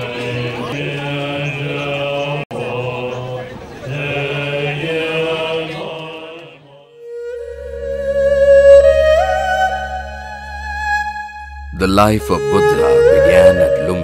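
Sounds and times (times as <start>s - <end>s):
monks chanting: 0.0s - 6.9s, 11.9s - 14.0s.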